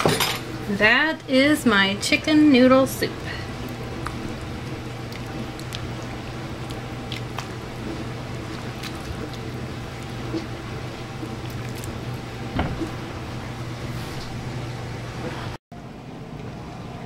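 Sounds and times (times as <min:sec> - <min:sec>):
steady low hum: 0:00.1 - 0:17.0.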